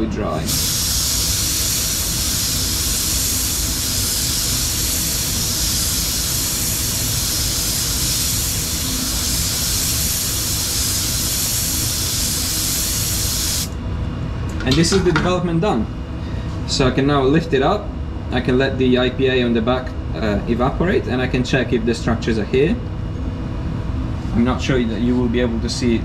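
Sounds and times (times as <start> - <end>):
blow gun hissing: 0.4 - 13.7.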